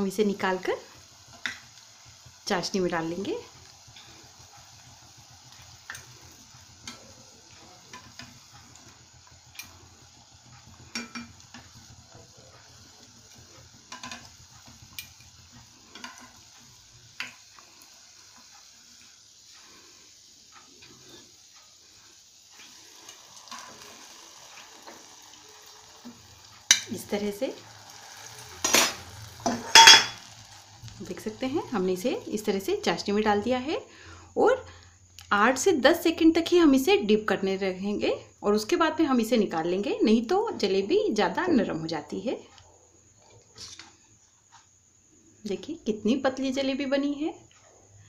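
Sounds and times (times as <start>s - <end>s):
oil sizzling: 0.0s - 48.0s
metal tongs clinking on pot: 28.6s - 30.4s.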